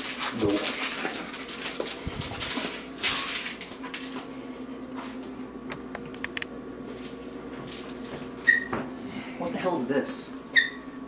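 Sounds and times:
rustling handling noise: 0:00.0 - 0:04.3
steady low hum: 0:00.0 - 0:11.0.

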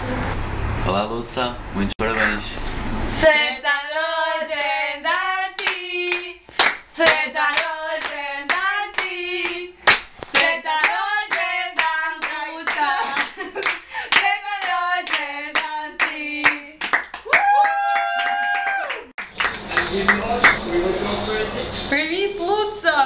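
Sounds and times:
women singing lively song: 0:03.0 - 0:17.2
hands clapping to beat: 0:05.6 - 0:20.6.

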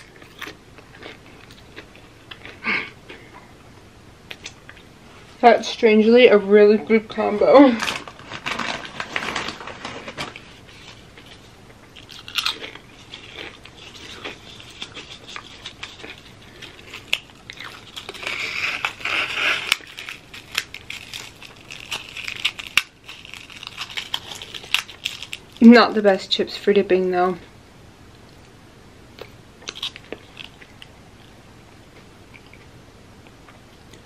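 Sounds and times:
crunching potato chips: 0:00.0 - 0:03.3, 0:07.7 - 0:25.8, 0:29.2 - 0:31.4.

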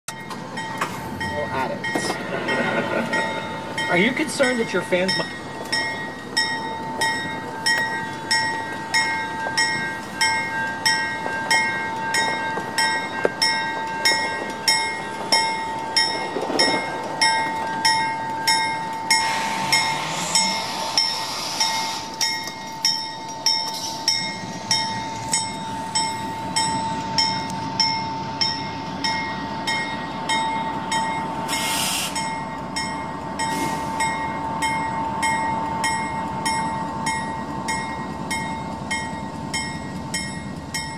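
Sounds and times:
freight train approaching: 0:00.1 - 0:40.9
railroad bell clanging: 0:00.1 - 0:40.9.

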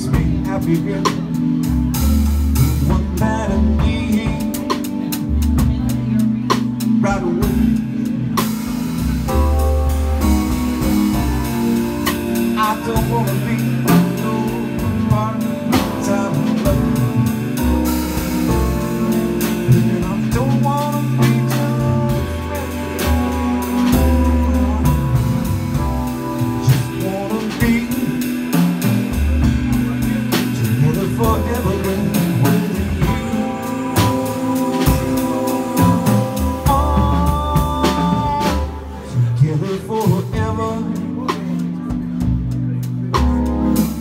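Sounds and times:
drum kit and cymbals: 0:00.0 - 0:44.0
keyboard chords and bass: 0:00.0 - 0:44.0
saxophone melody: 0:07.5 - 0:39.2.

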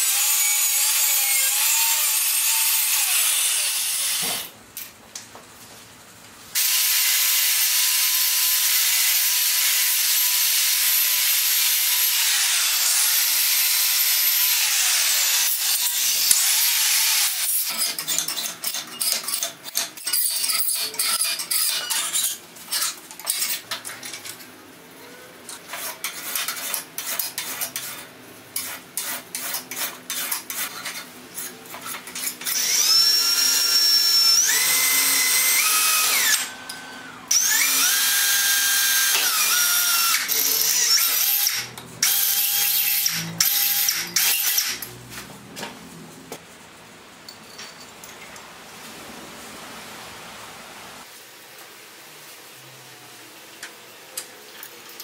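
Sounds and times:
file scraping metal plate: 0:17.6 - 0:23.8, 0:25.5 - 0:32.4
cordless drill whining: 0:32.5 - 0:44.8.

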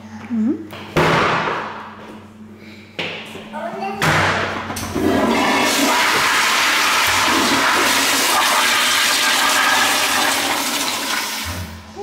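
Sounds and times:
toilet flushing: 0:04.8 - 0:12.0.

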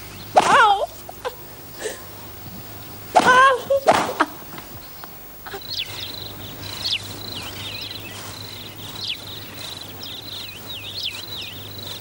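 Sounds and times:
high-pitched insect trill: 0:05.4 - 0:12.0.

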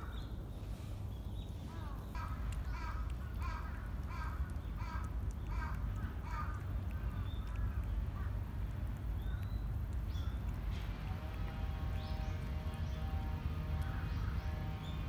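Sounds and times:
steady low rumble: 0:00.0 - 0:15.0
crow cawing: 0:01.8 - 0:06.6.

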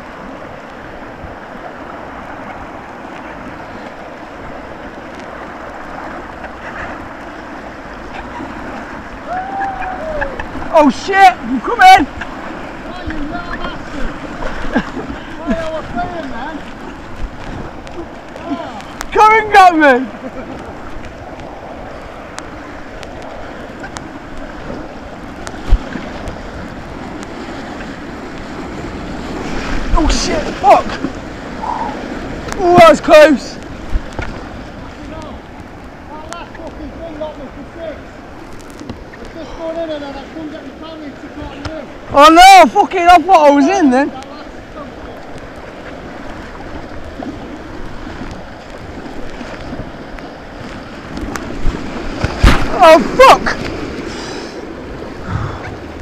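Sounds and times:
rushing white-water river: 0:00.0 - 0:56.0.

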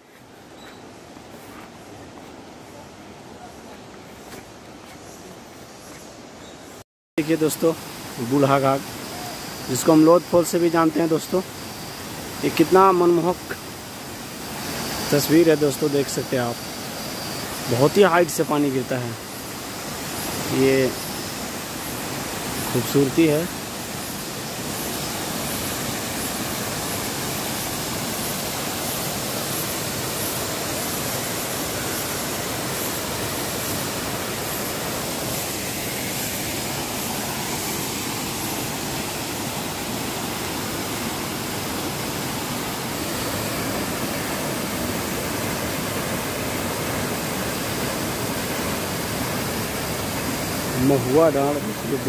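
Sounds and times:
waterfall rushing: 0:17.2 - 0:52.0.

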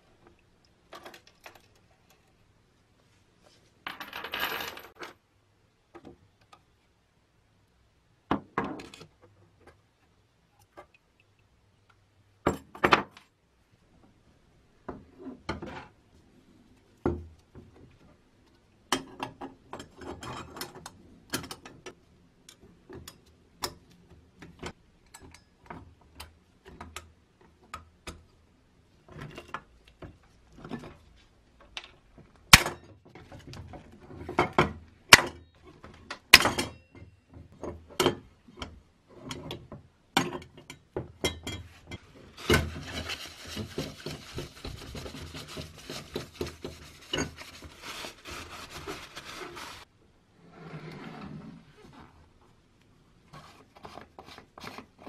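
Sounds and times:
rough scraping noise: 0:42.2 - 0:52.3.

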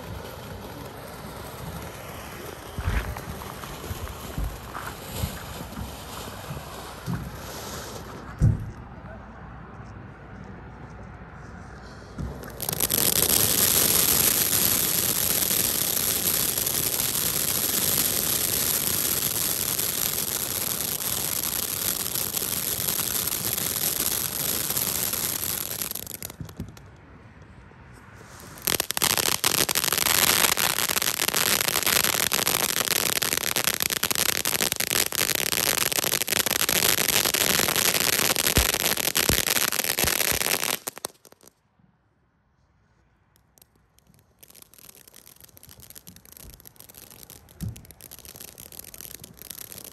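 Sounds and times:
firework fountain hissing and crackling: 0:00.0 - 0:08.4, 0:12.2 - 0:26.8, 0:28.2 - 0:41.5, 0:43.6 - 0:49.9.

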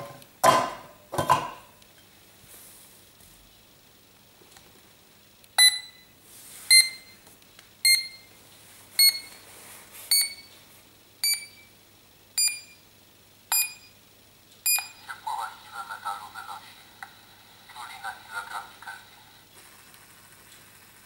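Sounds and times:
short electronic beeps: 0:05.6 - 0:06.0, 0:06.7 - 0:07.2, 0:10.1 - 0:10.5, 0:11.2 - 0:11.7, 0:12.4 - 0:12.8, 0:13.5 - 0:14.0, 0:14.7 - 0:15.0.

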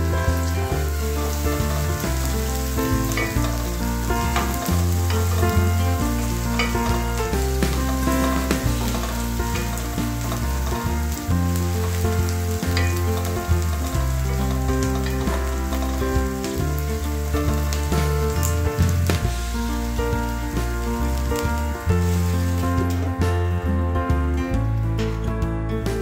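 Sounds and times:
onions sizzling in a pan: 0:00.0 - 0:23.4
background music with bass notes: 0:00.0 - 0:26.0
wooden spoon scraping a pan: 0:00.7 - 0:20.0.

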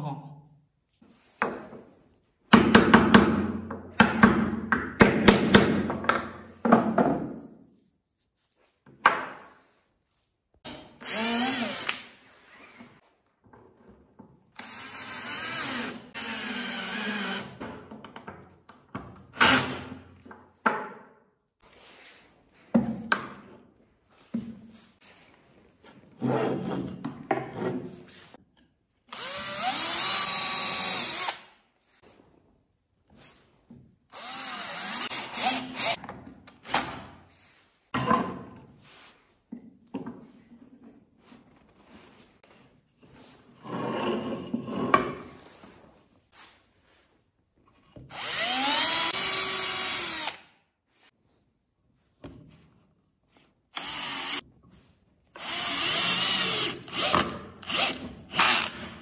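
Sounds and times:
power drill driving screws: 0:11.0 - 0:12.6, 0:14.6 - 0:17.6, 0:29.1 - 0:31.5, 0:34.1 - 0:36.0, 0:48.1 - 0:50.5, 0:53.7 - 0:54.4, 0:55.4 - 0:59.0.

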